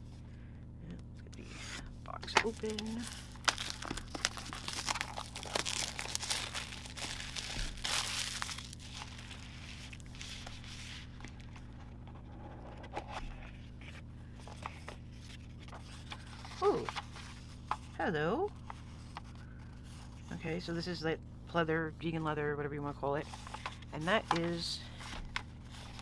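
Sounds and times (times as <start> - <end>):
packaging rustling: 2.1 - 12.1.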